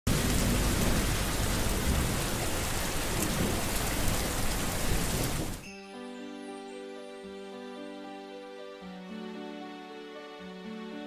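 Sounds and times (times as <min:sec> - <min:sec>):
heavy rain falling: 0:00.1 - 0:05.7.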